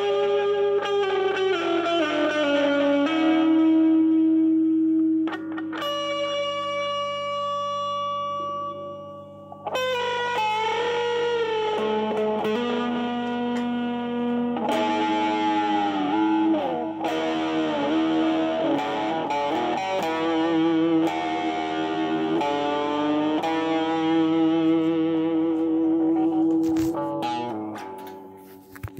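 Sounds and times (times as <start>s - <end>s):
electric guitar lead lines: 0.0s - 28.9s.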